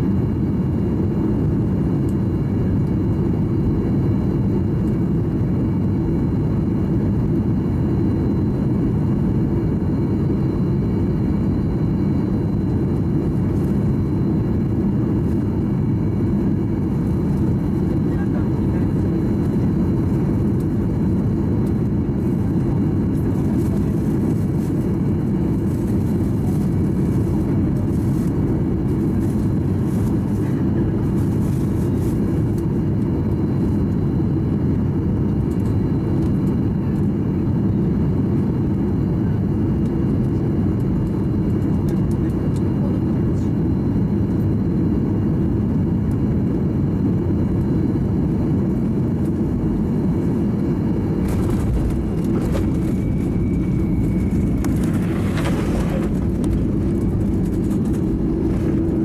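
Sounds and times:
airplane cabin engine drone: 0:00.0 - 0:59.0
rushing airflow: 0:51.1 - 0:59.0.

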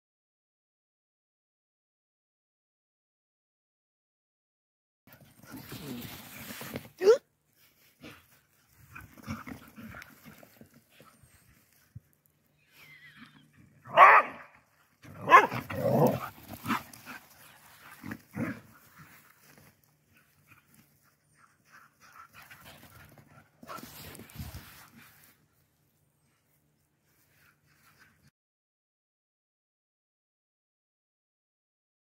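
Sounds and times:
dogs barking and growling: 0:08.0 - 0:11.5, 0:13.5 - 0:25.3.

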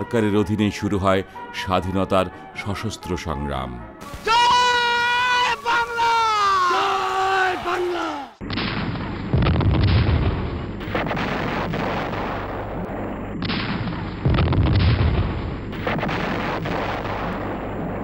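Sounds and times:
artillery and gunfire: 0:08.4 - 0:18.0
heavy booms: 0:08.4 - 0:18.0.

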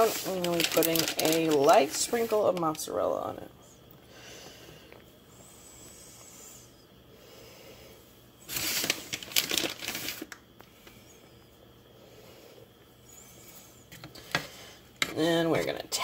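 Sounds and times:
plastic bag crinkling: 0:00.0 - 0:03.0, 0:08.5 - 0:10.4.

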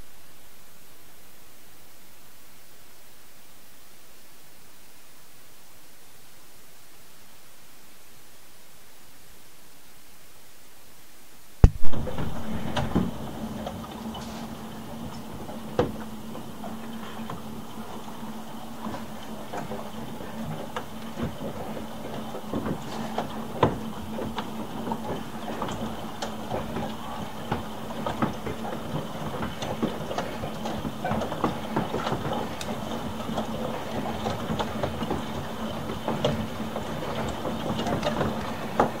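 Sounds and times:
rain hissing: 0:11.0 - 0:28.0
low hum: 0:11.5 - 0:20.3.

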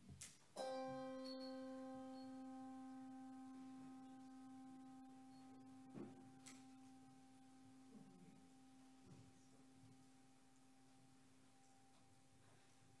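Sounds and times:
handbell ringing: 0:00.6 - 0:04.1.

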